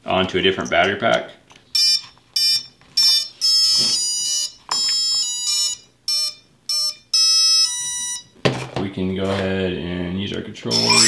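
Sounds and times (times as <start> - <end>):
short electronic beeps: 10.7 - 11.0.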